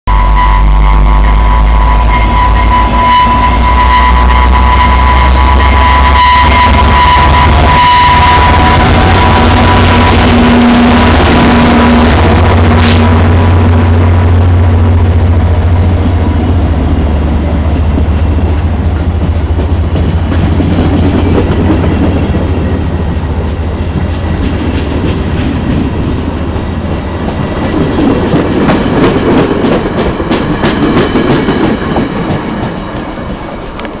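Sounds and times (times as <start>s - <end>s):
diesel locomotive engine drone: 0.1s - 34.0s
passenger cars rumbling: 4.8s - 34.0s
train wheel clicks on rail joints: 33.7s - 34.0s.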